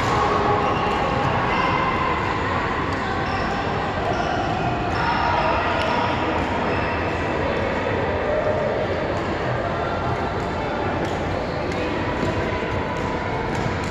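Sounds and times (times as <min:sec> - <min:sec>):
sports hall background noise: 0:00.0 - 0:13.9.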